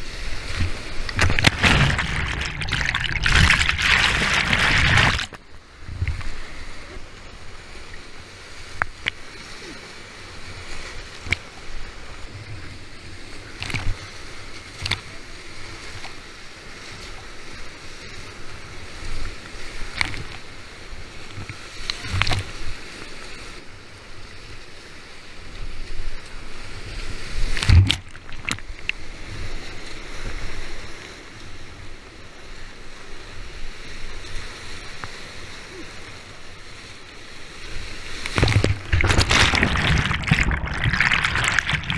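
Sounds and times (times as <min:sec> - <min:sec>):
paddle splashing: 0:00.0 - 0:06.4, 0:27.2 - 0:29.3, 0:37.4 - 0:41.9
rushing whitewater: 0:00.0 - 0:12.2, 0:37.4 - 0:41.9
waves splashing on a kayak: 0:00.0 - 0:41.9.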